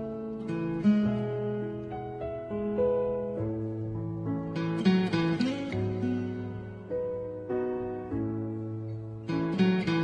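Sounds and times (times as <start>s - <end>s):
acoustic guitar strumming chords: 4.5s - 6.9s, 9.2s - 10.0s.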